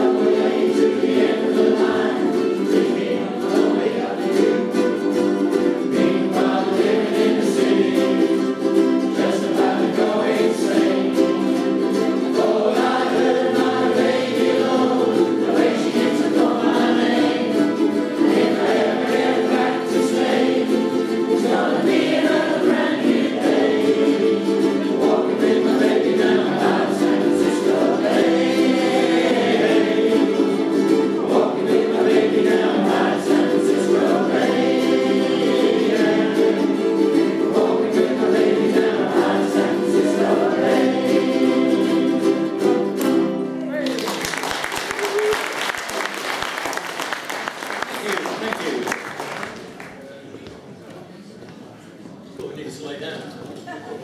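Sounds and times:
group singing: 0.0 - 43.5
ukuleles strumming: 0.0 - 50.0.

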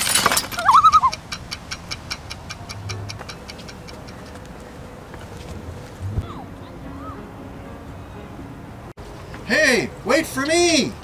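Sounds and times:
clock ticking: 0.6 - 4.5.

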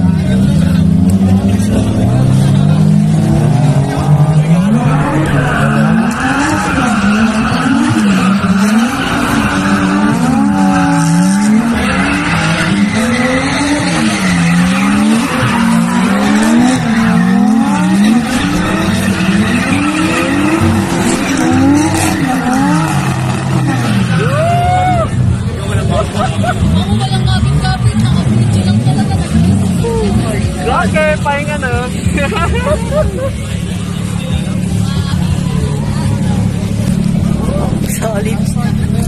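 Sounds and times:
car engine revving: 0.0 - 39.0.

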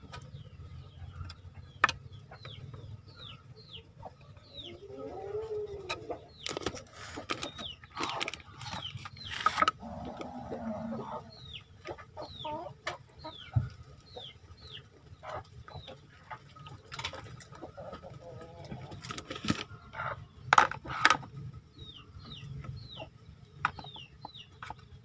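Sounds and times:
clucking calls: 0.0 - 24.9
knife scraping: 8.0 - 9.7.

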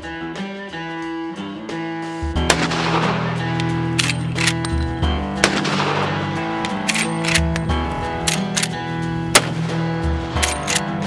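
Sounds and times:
guitar background music: 0.0 - 11.0
loud gunshots: 2.4 - 4.6, 5.2 - 7.5, 9.3 - 9.9.

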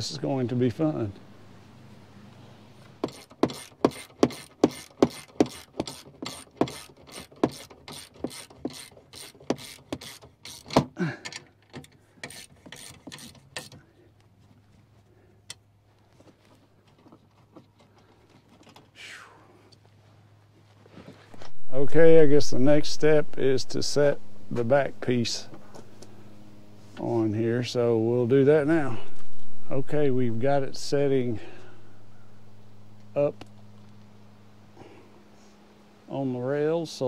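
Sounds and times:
ratchet clicking: 3.0 - 10.8, 11.8 - 13.8.

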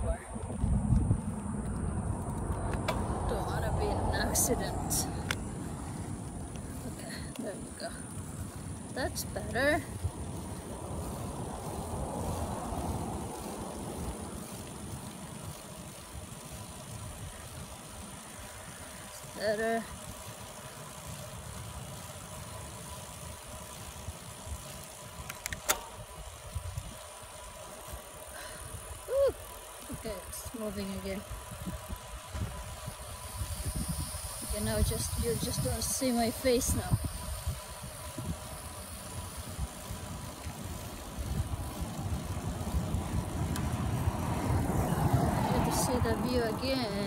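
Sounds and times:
bicycle road noise: 0.0 - 47.0
wind rumbling on microphone: 0.0 - 47.0
sharp clicks: 25.2 - 26.0.

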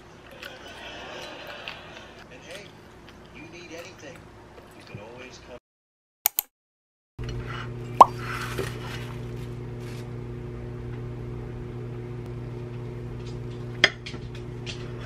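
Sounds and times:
sharp click: 6.3 - 6.5.

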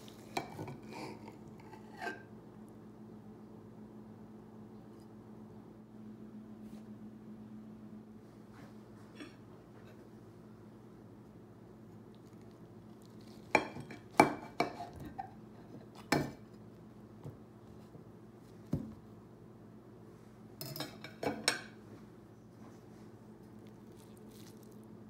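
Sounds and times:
utensil clinking on ceramic dishes: 20.6 - 21.7.

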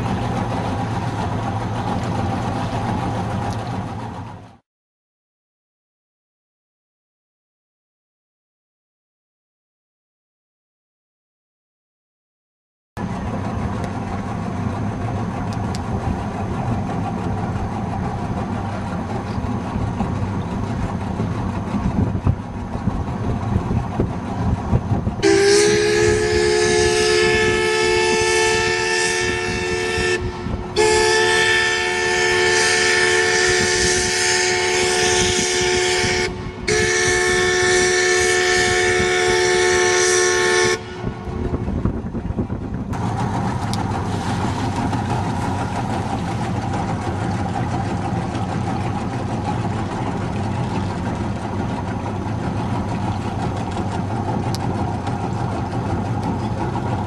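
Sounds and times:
low rumble: 13.0 - 25.2, 40.7 - 57.0
steam whistle blasts: 25.2 - 41.2.

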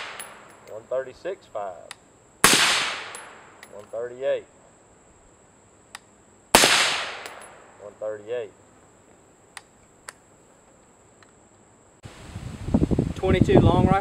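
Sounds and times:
suppressed rifle shot: 2.4 - 3.6, 6.5 - 7.7.

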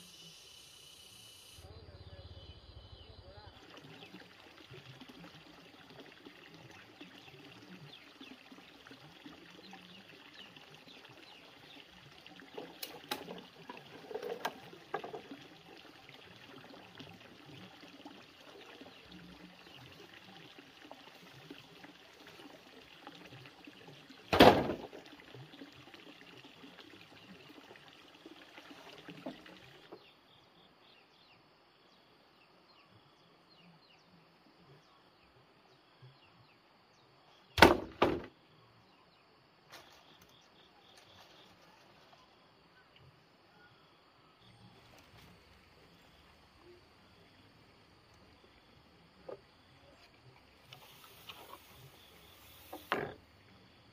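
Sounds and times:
outdoor background noise: 0.0 - 53.9
loud sharp thumps: 24.3 - 24.8, 37.6 - 38.3.

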